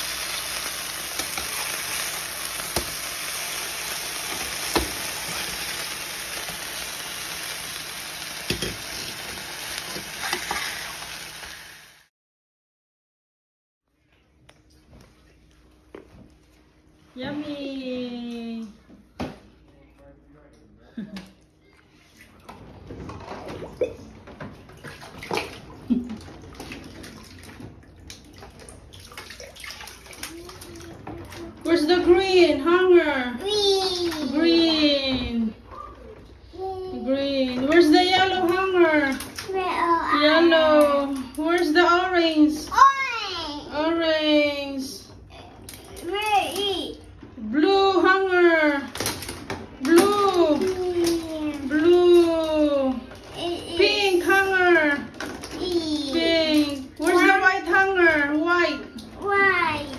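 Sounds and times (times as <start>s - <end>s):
bathwater sloshing and splashing: 0.0s - 11.5s, 13.9s - 19.6s, 21.1s - 59.9s
burger patties sizzling in a pan: 0.0s - 12.1s.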